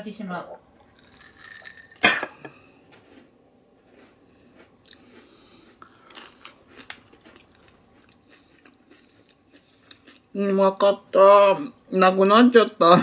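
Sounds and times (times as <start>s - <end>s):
crunchy bites and chewing: 3.8s - 10.3s.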